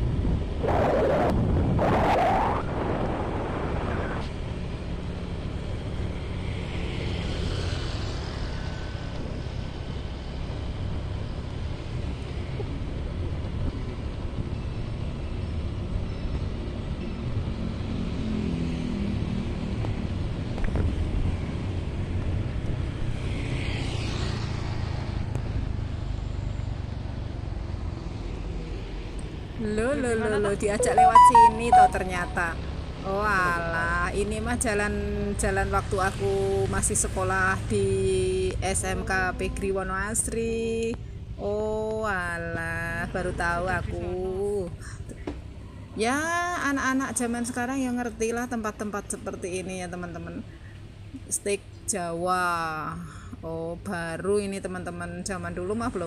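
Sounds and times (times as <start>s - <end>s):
wind buffeting microphone: 0.0s - 4.2s
vehicle road noise rumble: 0.0s - 56.0s.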